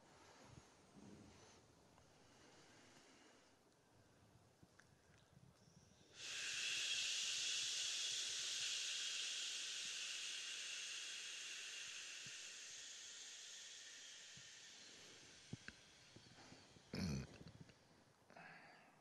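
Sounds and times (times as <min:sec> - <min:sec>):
long exhaled shh: 0:06.1 - 0:17.2.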